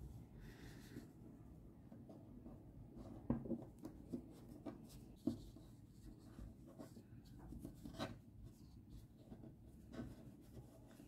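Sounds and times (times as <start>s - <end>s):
faint rustling of yarn and wire: 0.0s - 11.0s.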